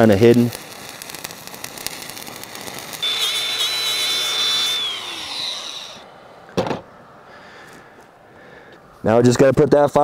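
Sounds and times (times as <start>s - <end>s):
welding arc crackle: 0.0s - 6.0s
angle grinder whine: 2.9s - 6.1s.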